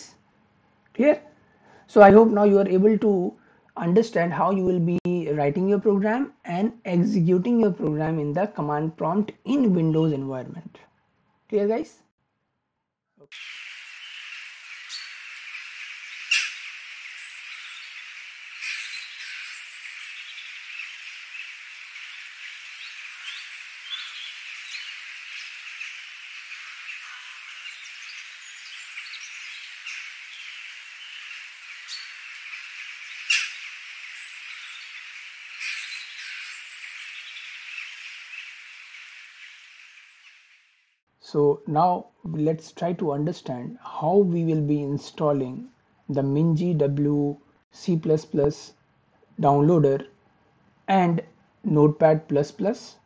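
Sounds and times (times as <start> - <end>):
birds chirping: 13.3 - 40.7
outdoor background hiss: 13.3 - 53.0.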